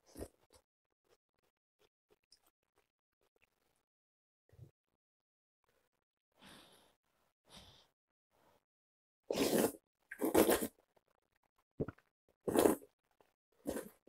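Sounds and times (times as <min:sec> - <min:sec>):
person slurping noodles: 0:09.3 - 0:10.8.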